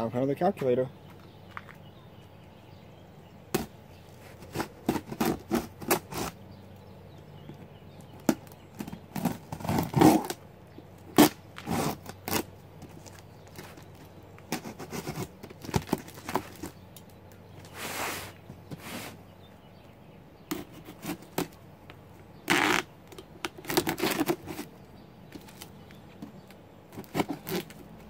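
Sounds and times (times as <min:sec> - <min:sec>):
blade scraping packing tape: 0:03.6 - 0:06.4, 0:08.3 - 0:10.4, 0:11.1 - 0:16.7, 0:20.5 - 0:21.6, 0:22.5 - 0:24.7, 0:25.4 - 0:25.8, 0:26.9 - 0:27.9.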